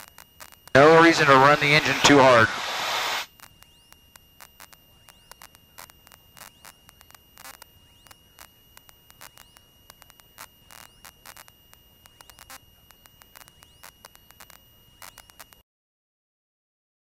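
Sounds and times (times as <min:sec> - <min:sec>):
intercom static crackles: 0:00.0 - 0:03.3
steady high-pitched whine: 0:00.0 - 0:15.6.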